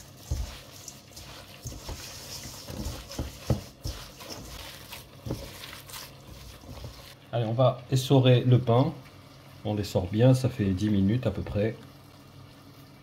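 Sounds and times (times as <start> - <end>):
hand kneading minced meat: 0.0 - 7.2.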